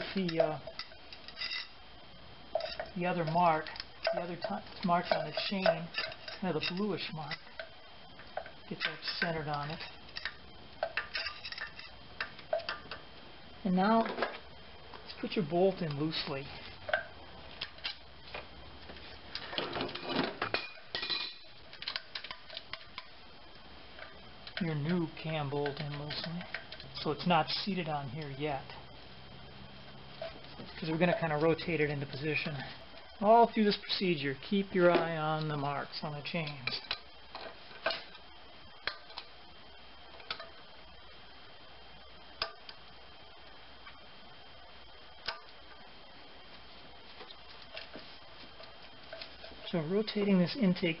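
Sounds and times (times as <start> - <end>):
faint steady high tone: 0.0 - 51.0.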